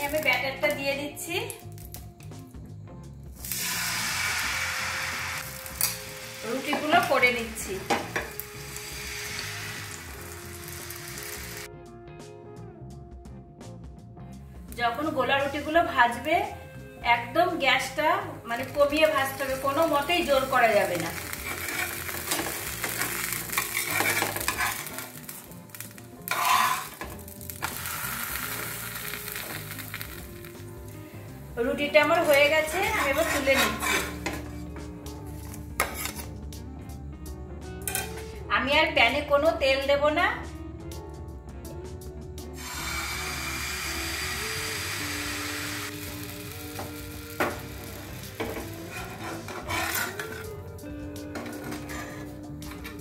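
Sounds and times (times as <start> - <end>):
crepe sizzling in frying pan: 3.4 - 11.7, 18.6 - 34.5, 43.4 - 50.4
spatula scraping a pan: 21.2 - 25.4, 26.3 - 28.5, 32.2 - 34.8, 35.4 - 36.3, 48.4 - 50.7, 51.4 - 52.5.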